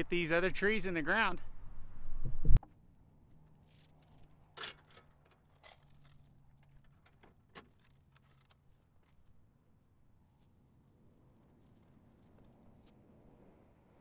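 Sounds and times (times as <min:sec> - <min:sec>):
metal clinks and knocks: 0:03.4 - 0:09.3.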